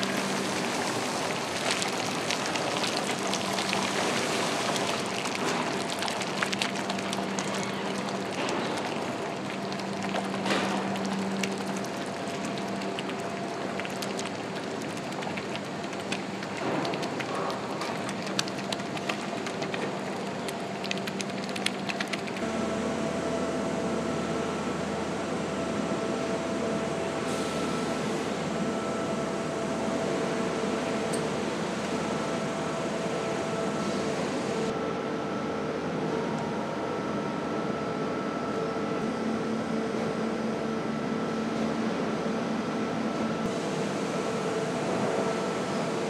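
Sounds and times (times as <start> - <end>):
steady machine hum: 0.0 - 46.0
sharp crackles and clicks: 1.5 - 22.4.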